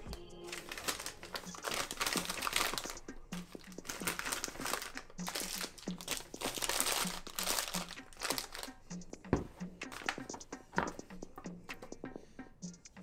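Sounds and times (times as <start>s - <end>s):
plastic packets crinkling: 0.0s - 8.8s, 9.9s - 10.9s.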